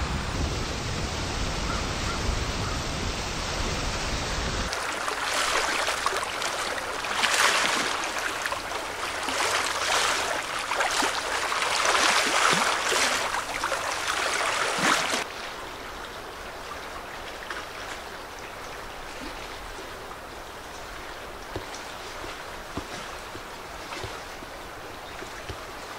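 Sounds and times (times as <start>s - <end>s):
waves washing against rocks: 4.7s - 15.3s.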